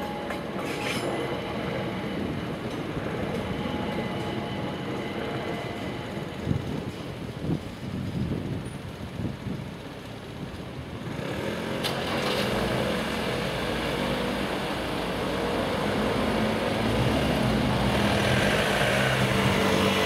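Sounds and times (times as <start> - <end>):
traffic engines pulling away: 9.7 - 20.0.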